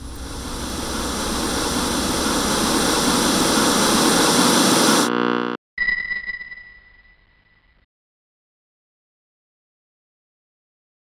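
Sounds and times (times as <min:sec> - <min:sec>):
short buzz: 0:00.0 - 0:05.6
static hiss: 0:00.0 - 0:05.6.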